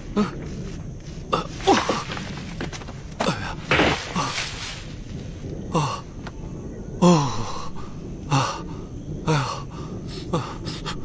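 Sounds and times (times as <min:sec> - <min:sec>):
man grunting and gasping: 0:03.2 - 0:04.5, 0:05.7 - 0:06.2, 0:07.0 - 0:11.0.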